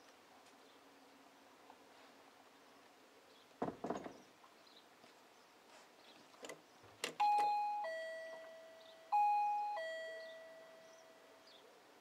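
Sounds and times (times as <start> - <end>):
doorbell button click: 7.2 - 10.8
two-tone doorbell chime: 7.2 - 11.5.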